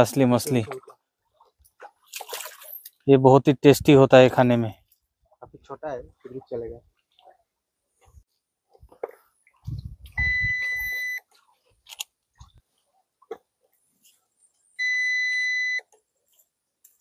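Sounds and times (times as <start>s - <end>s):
long steady alarm beeps: 10.2s - 11.2s, 14.8s - 15.8s.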